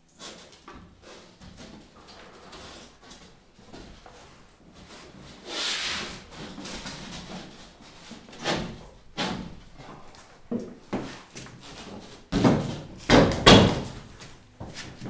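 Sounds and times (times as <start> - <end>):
hollow knocks and bumps: 12.3 - 15.0.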